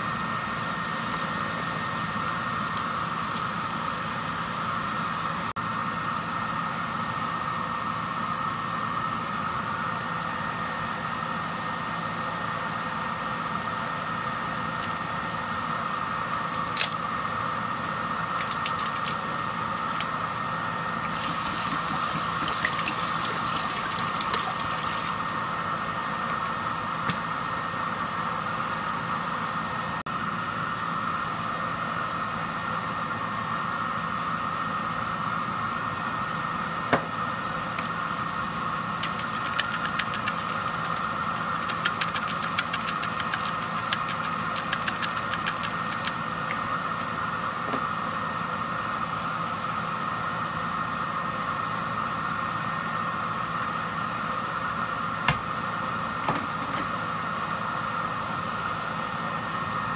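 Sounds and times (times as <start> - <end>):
mechanical hum: 0.0 - 59.9
sizzling hiss: 21.1 - 23.4
quick clicks: 39.0 - 46.2
milk crackling in a pot: 39.0 - 46.6.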